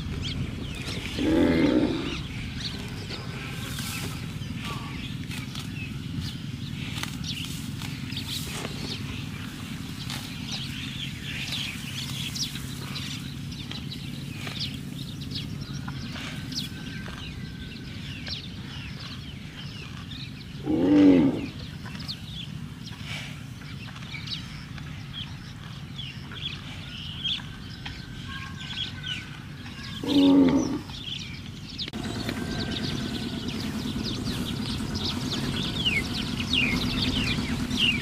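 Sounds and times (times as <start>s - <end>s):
small birds chirping: 0.0s - 38.0s
cow mooing: 1.1s - 2.3s, 20.6s - 21.6s.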